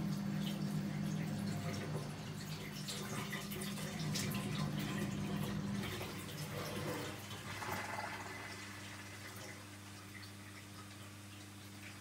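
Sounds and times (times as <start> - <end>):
dishwasher hum: 0.0 - 12.0.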